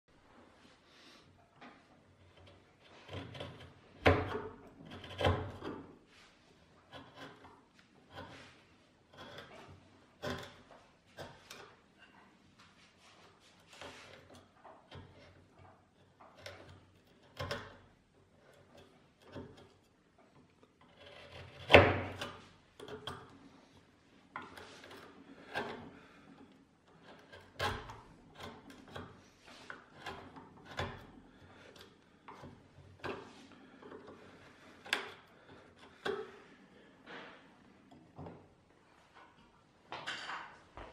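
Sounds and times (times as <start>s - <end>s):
chisel paring wood: 2.1s - 6.0s, 6.8s - 11.8s, 13.6s - 23.3s, 24.4s - 36.4s.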